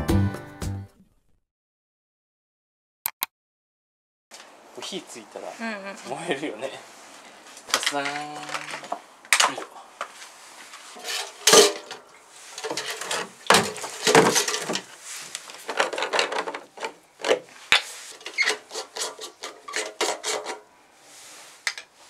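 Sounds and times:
cans scraping on tiled floor: 10.7s - 21.9s.

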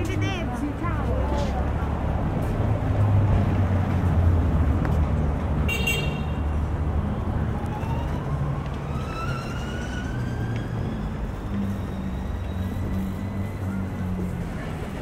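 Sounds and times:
city traffic rumble: 0.0s - 15.0s
vehicle whine rising in pitch: 7.0s - 15.0s.

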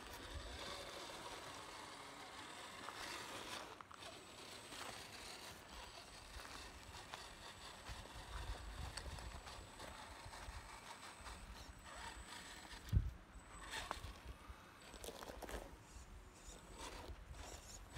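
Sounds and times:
toy car tyres crunching on dirt: 0.0s - 17.9s.

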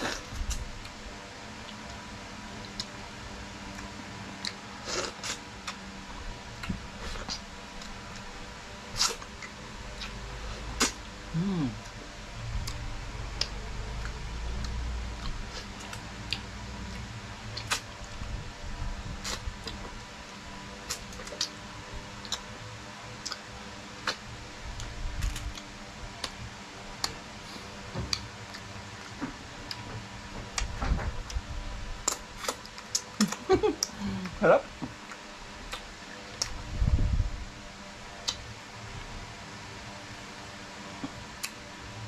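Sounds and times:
mouth smacks and clicks: 32.1s - 34.0s, 38.2s - 38.4s
low rumble: 36.6s - 37.6s.

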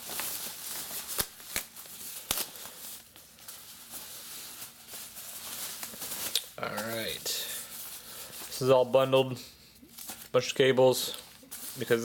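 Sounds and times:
plastic bag rustling: 0.0s - 12.0s.

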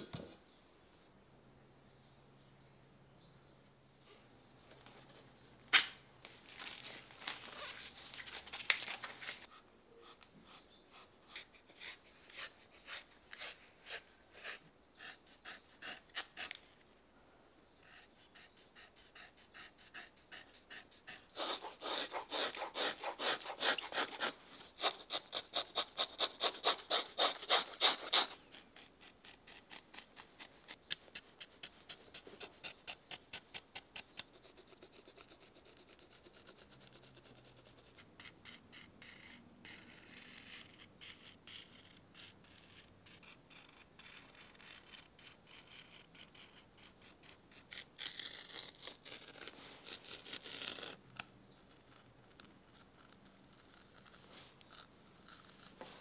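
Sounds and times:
leather being rubbed and scraped: 20.0s - 30.8s, 43.2s - 51.0s, 52.7s - 56.0s.

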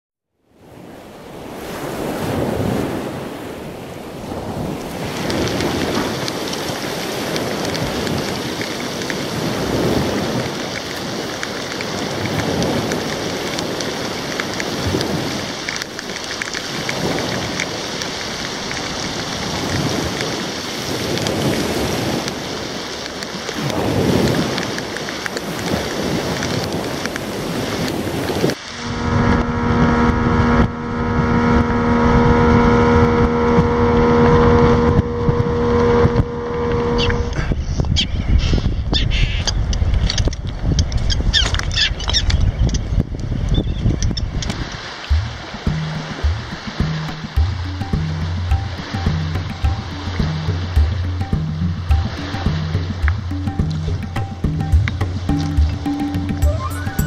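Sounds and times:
heavy rain pouring: 1.3s - 37.6s, 43.9s - 57.0s
low rumbling: 28.5s - 37.8s, 43.9s - 57.0s.

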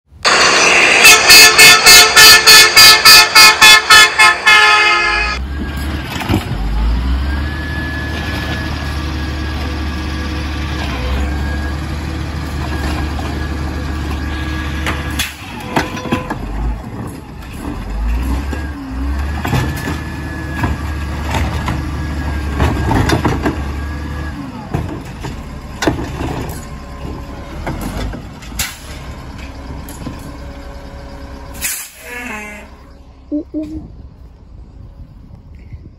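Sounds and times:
rapid horn blasts: 0.6s - 5.4s
garbage truck idling: 6.6s - 35.4s
clunks: 12.6s - 32.9s.

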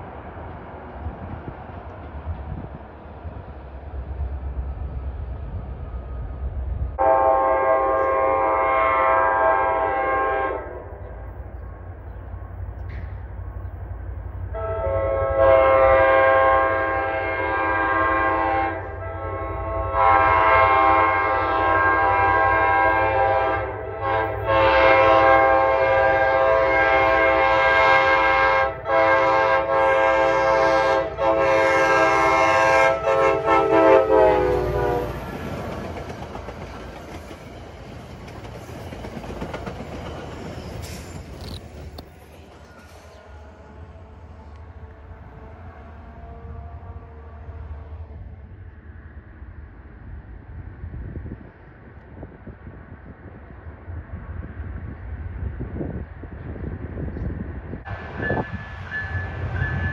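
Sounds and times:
train rumble: 0.0s - 59.9s
train horn blasts: 7.0s - 11.3s, 14.5s - 35.3s, 42.0s - 48.5s, 58.2s - 59.9s.

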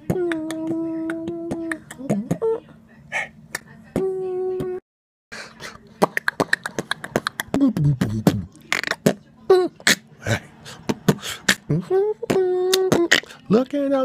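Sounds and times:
man beatboxing: 6.0s - 9.0s, 9.8s - 13.4s.

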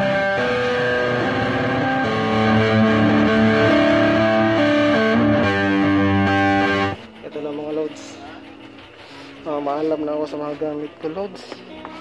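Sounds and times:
electric guitar single notes: 0.0s - 7.0s.

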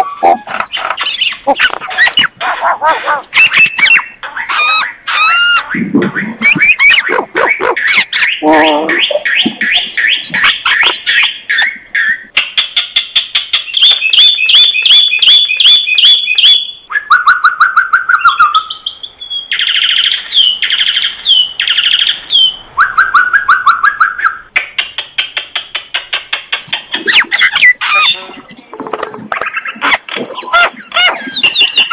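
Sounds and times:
harsh rasping bird calls: 0.0s - 28.4s, 29.2s - 31.9s
myna whistled notes: 3.3s - 12.3s.

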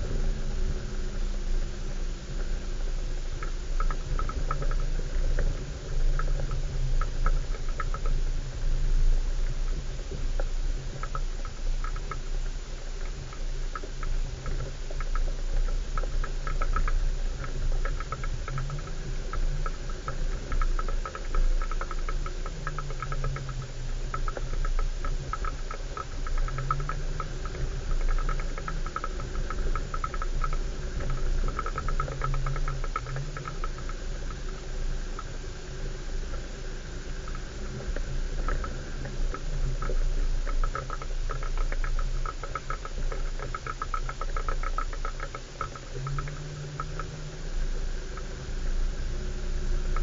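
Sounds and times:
engine running at low revs: 0.0s - 12.0s
vehicle rattling and clicking: 37.3s - 47.5s.

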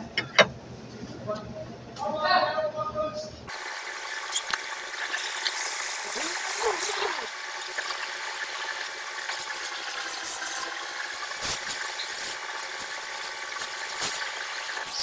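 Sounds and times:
cutting torch hissing: 3.5s - 15.0s.

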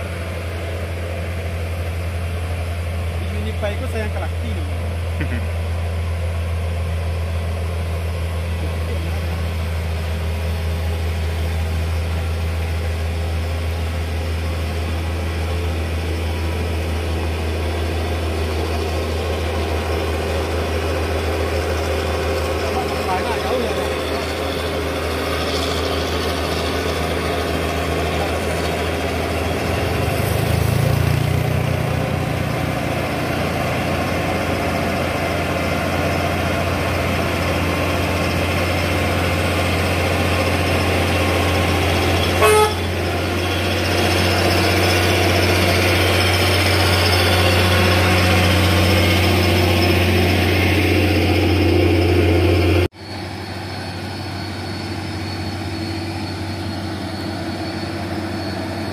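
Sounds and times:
diesel truck engine pulling hard: 0.0s - 58.9s
truck horn toot: 42.4s - 43.0s.

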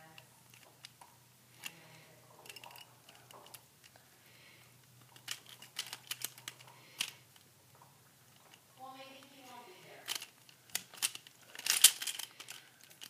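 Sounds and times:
plastic puzzle clicking: 5.0s - 7.2s, 10.1s - 13.0s.

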